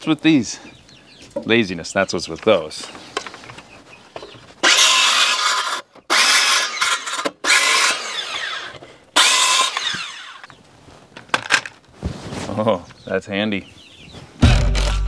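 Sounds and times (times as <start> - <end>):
circular saw cutting wood: 4.6 - 10.5.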